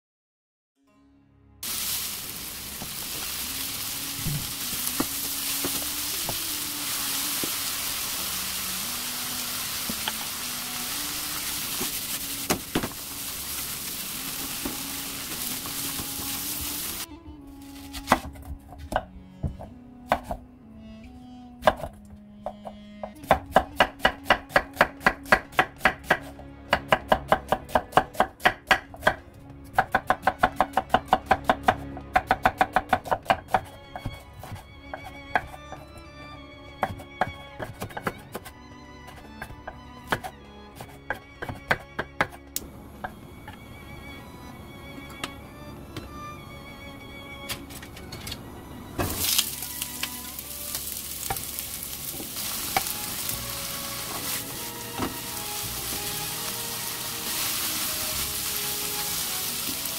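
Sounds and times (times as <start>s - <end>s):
onions sizzling in a pan: 1.6s - 17.1s, 49.1s - 59.9s
knife chopping on wooden board: 21.6s - 35.8s, 36.8s - 38.5s, 39.1s - 42.4s.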